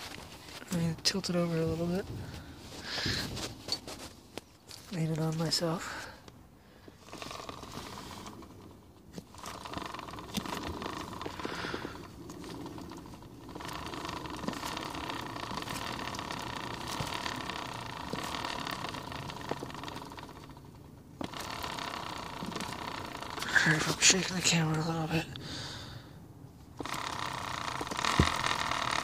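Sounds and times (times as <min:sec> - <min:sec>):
motorcycle wheel whirring: 0:00.0 - 0:29.0
hub rattle and ticking: 0:06.9 - 0:24.8, 0:26.6 - 0:29.0.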